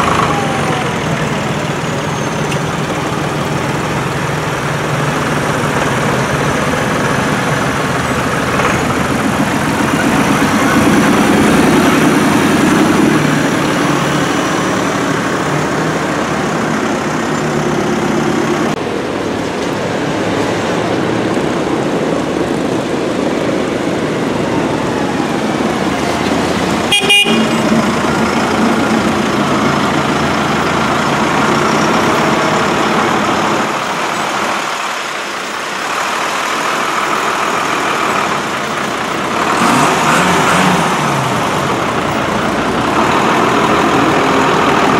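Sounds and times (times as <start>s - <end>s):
tractor engines passing: 0.0s - 44.9s
short horn toot: 26.9s - 27.7s.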